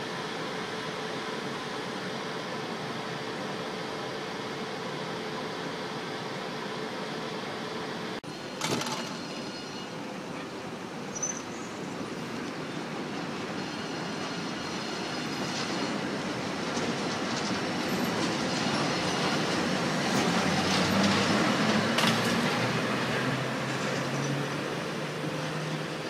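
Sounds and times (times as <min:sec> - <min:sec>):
train wheels rumbling over rail joints: 0:08.6 - 0:10.5, 0:12.0 - 0:25.6.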